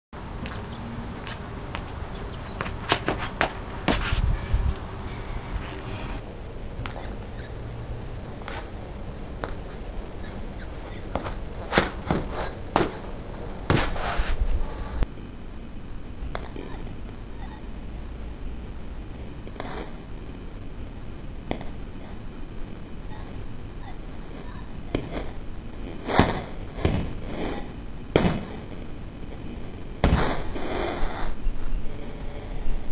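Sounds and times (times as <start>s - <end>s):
shoes scuffing on pavement: 0.4s - 4.8s
shoe scuffs on concrete: 2.5s - 4.3s, 11.1s - 12.9s, 13.7s - 14.4s.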